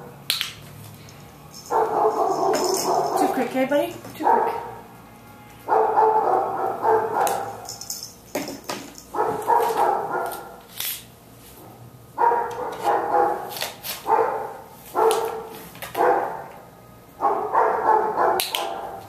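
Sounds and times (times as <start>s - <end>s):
dog barking: 1.7s - 3.3s, 4.2s - 4.8s, 5.7s - 7.6s, 9.1s - 10.6s, 12.2s - 16.5s, 17.2s - 19.0s.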